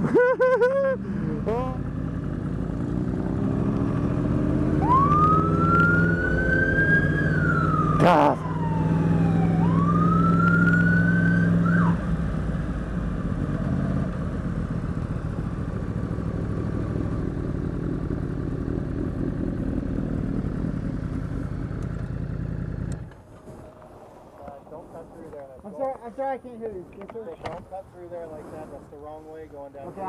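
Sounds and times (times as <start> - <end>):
motorcycle engine running: 1.1 - 6.2, 12.0 - 23.1
police siren wailing: 4.8 - 12.0.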